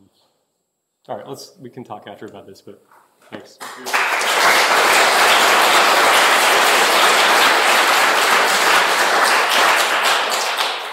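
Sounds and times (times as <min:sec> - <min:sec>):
audience applauding: 0:03.6 - 0:10.9.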